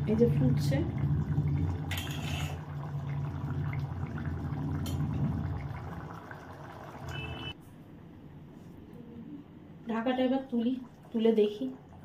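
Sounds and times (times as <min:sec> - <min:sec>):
pot bubbling and simmering: 0:00.0 - 0:07.6, 0:10.5 - 0:12.0.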